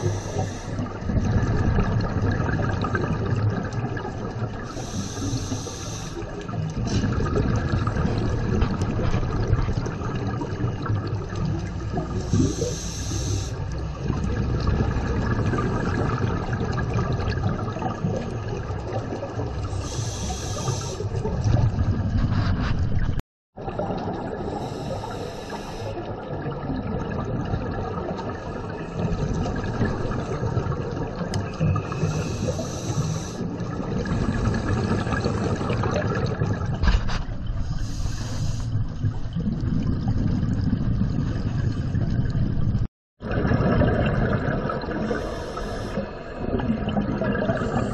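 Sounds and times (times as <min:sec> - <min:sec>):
regulator inhale hiss: 0:00.0 - 0:00.9, 0:04.7 - 0:06.3, 0:12.3 - 0:13.6, 0:19.8 - 0:21.2, 0:24.5 - 0:26.0, 0:32.0 - 0:33.5, 0:37.6 - 0:38.8, 0:45.1 - 0:46.2.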